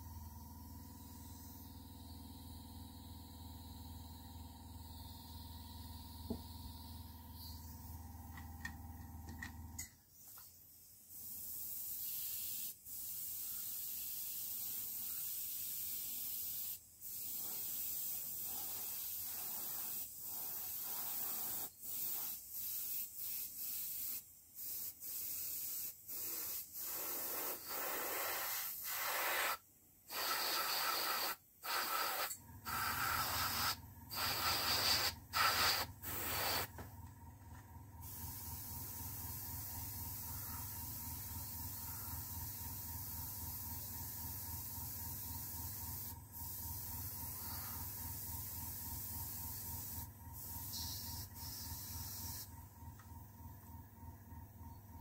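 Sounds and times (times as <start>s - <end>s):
airbrush spraying hiss: 10.1s - 36.8s, 38.0s - 52.5s.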